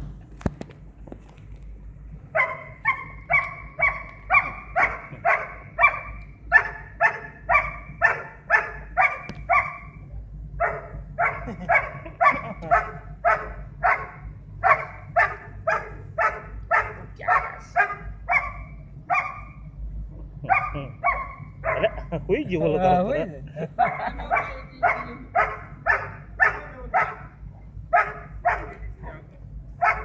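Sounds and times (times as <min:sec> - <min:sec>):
dog barking: 0:02.3 - 0:10.0, 0:10.6 - 0:19.6, 0:20.5 - 0:22.1, 0:23.8 - 0:28.9, 0:29.8 - 0:30.0.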